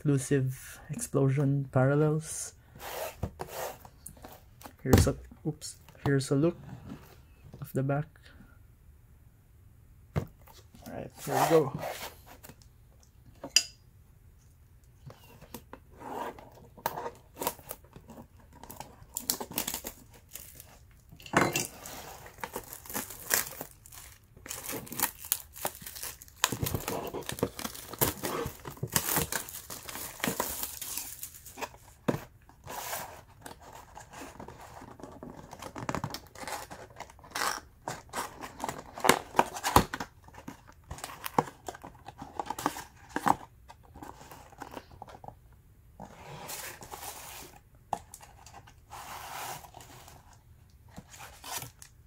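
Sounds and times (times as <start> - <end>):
packaging tearing and crinkling: 18.6 - 20.8, 21.8 - 31.8.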